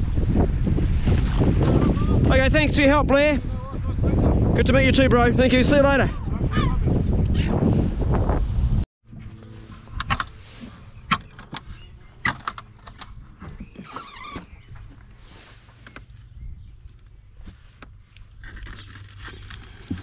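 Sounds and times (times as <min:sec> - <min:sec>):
low hum: 0:08.0 - 0:13.8.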